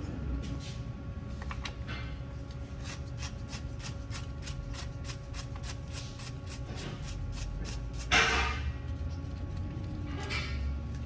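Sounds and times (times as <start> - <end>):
tool scraping: 2.8 - 10.7.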